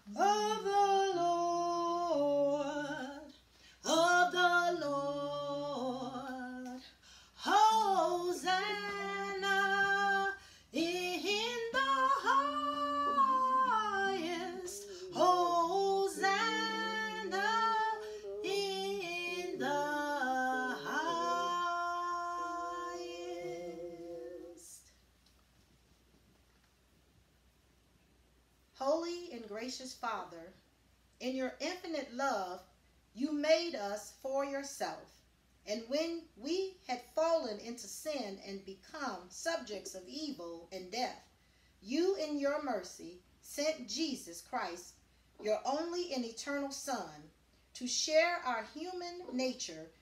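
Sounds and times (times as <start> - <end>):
woman singing a hymn solo: 0.0 - 24.9.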